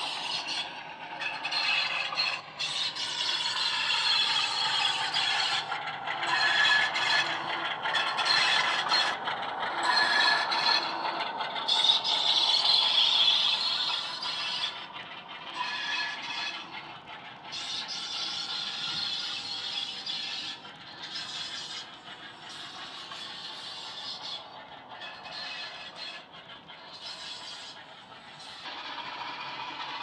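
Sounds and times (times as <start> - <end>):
high-pitched flange squeal: 0.0 - 14.9, 15.5 - 16.8
diesel engine sound from speaker: 0.0 - 30.0
wheels clattering on track: 0.0 - 30.0.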